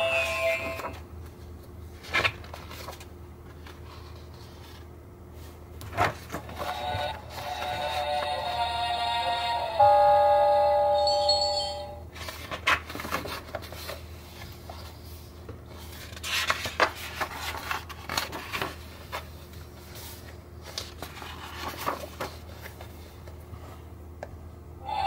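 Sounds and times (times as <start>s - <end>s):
paper rustling: 0.5s - 8.2s, 12.2s - 23.7s
book pages turning: 0.6s - 8.4s, 12.2s - 23.4s
electronic tune from sound book: 9.8s - 12.0s.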